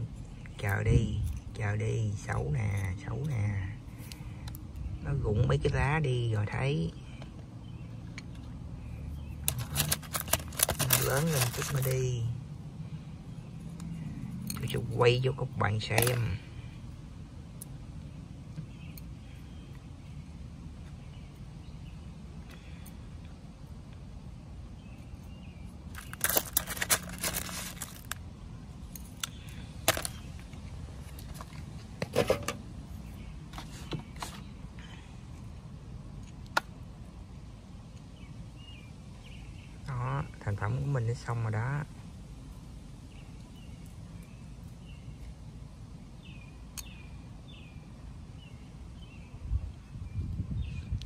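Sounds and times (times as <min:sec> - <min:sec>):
small birds chirping: 0:00.0 - 0:32.0, 0:32.6 - 0:51.0
low outdoor rumble: 0:00.0 - 0:51.0
stones clinking and rattling: 0:25.9 - 0:28.2
metal scoop scraping gravel: 0:26.0 - 0:28.2.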